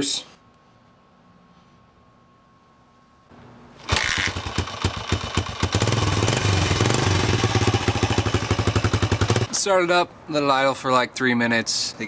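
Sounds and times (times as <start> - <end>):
motorcycle engine starting and idling: 3.8 - 9.5.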